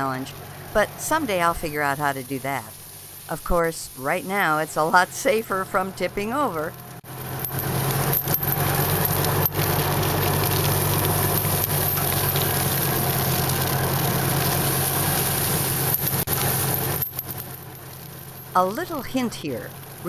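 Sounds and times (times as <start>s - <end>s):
golf cart motor humming: 0.0s - 20.0s
chain rattling and scraping: 7.0s - 19.2s.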